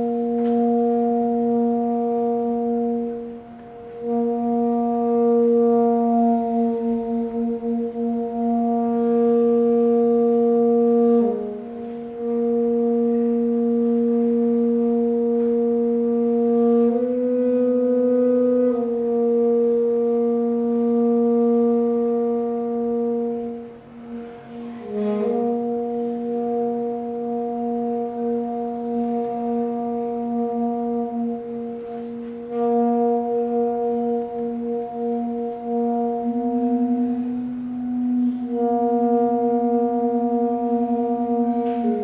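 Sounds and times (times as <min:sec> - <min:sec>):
tenor saxophone holding low notes: 0:00.0 - 0:42.0.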